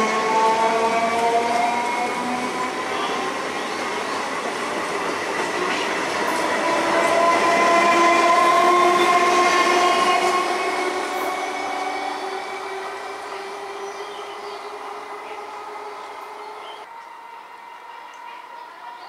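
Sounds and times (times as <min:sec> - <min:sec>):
train wheels clattering on rails: 0:00.0 - 0:12.8
electric train motors whining: 0:00.0 - 0:19.0.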